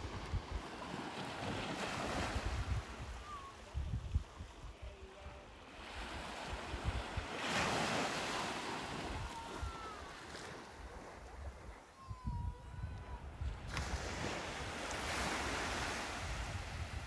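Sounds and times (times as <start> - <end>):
wind buffeting microphone: 0.0 - 17.0
surf breaking on beach: 5.4 - 11.9, 12.6 - 17.0.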